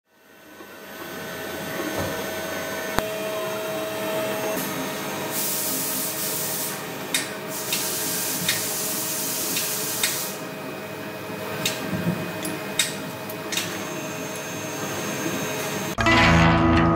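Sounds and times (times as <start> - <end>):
machine spindle whine and grinding: 0.1 - 16.0
loud air hiss: 4.9 - 10.5.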